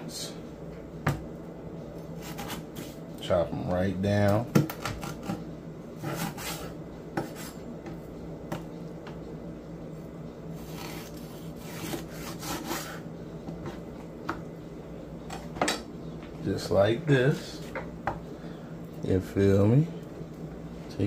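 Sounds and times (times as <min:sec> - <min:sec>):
knife scraping across board: 0:02.2 - 0:03.0, 0:06.0 - 0:07.6, 0:10.6 - 0:13.0.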